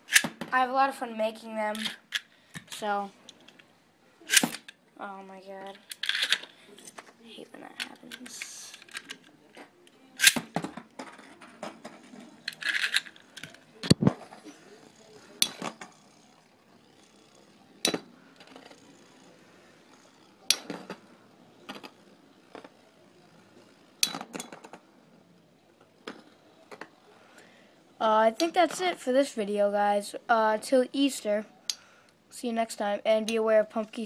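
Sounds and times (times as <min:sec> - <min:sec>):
metal spinning tops clashing: 0:11.8 - 0:22.9, 0:23.9 - 0:24.8.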